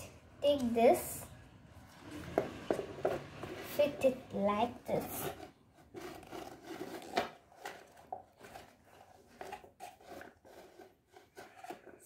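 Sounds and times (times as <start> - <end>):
plastic toy parts clicking and scraping: 4.8 - 12.0.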